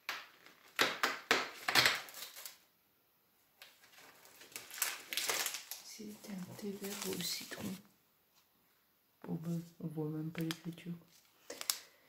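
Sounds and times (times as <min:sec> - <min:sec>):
packaging crackling and rustling: 0:00.2 - 0:02.6, 0:03.6 - 0:07.8, 0:10.3 - 0:12.0
faint handling noises: 0:03.6 - 0:08.5.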